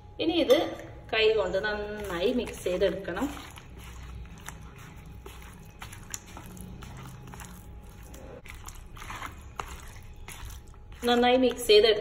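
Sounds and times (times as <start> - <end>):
low steady hum: 0.0 - 12.0
wet squishes of mixing chicken: 1.6 - 12.0.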